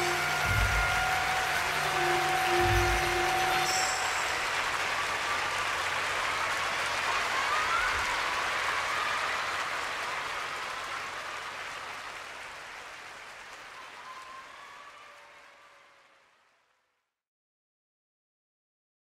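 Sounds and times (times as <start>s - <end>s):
audience applauding and cheering: 0.0s - 16.9s.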